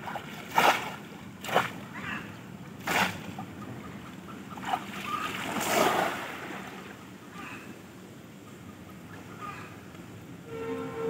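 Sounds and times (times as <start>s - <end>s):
splashing in water: 0.0s - 2.0s, 2.8s - 3.4s, 4.6s - 6.8s.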